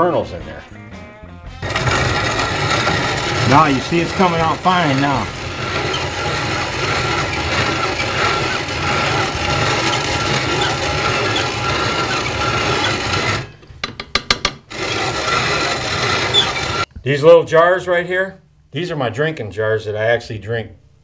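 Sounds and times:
grain mill grinding: 1.6s - 16.9s
mill clicks: 1.6s - 16.9s.

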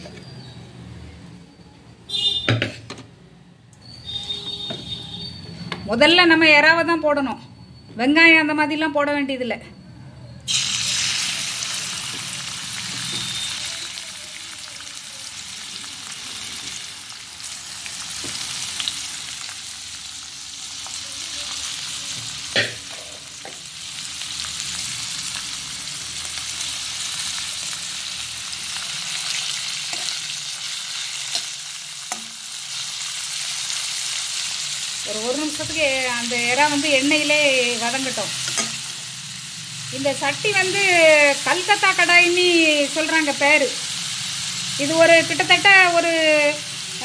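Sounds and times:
prawns sizzling in hot oil: 10.5s - 47.0s.

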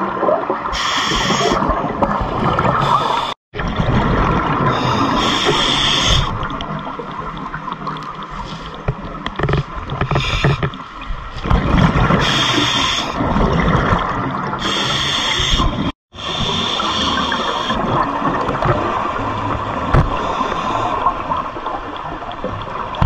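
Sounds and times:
diver breathing through regulator: 0.8s - 1.7s, 4.7s - 6.4s, 12.2s - 13.2s, 14.6s - 17.8s.

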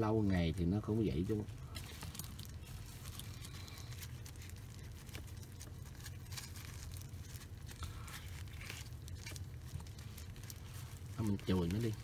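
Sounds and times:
steady low hum: 0.0s - 12.0s
tissue paper and gloves rustling: 0.0s - 12.0s.

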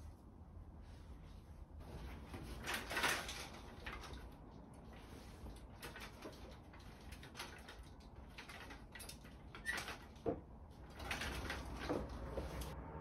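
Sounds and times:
blanket fabric rustling: 0.6s - 6.1s.

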